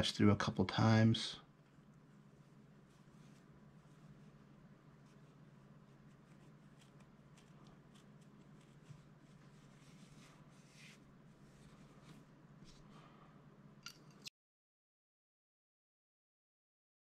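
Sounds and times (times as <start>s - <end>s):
faint room hum: 0.0s - 14.3s
cloth patch rustling and ticking: 1.5s - 12.9s.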